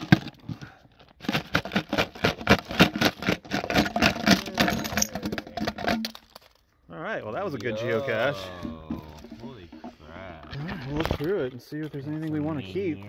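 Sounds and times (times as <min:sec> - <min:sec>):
plastic toys clattering on pavement: 0:00.0 - 0:06.8, 0:10.6 - 0:13.0.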